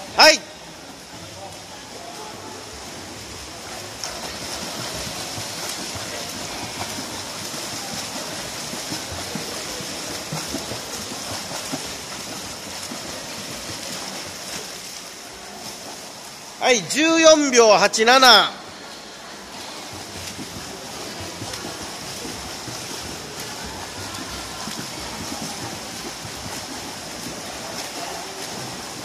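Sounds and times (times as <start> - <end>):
swimmer splashing: 0.0 - 29.0.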